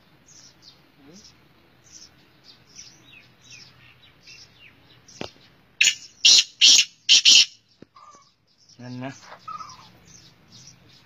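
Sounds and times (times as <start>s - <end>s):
small birds chirping: 0.0s - 11.0s
francolin harsh grating call: 5.8s - 8.3s.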